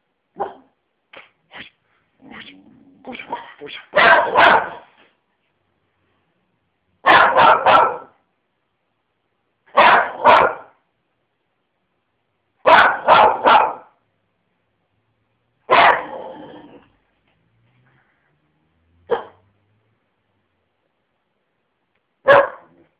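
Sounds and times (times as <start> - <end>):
dog barking: 0.4 - 0.8, 4.0 - 5.0, 7.0 - 8.2, 9.7 - 10.8, 12.6 - 14.0, 15.7 - 16.4, 19.1 - 19.5, 22.2 - 22.9.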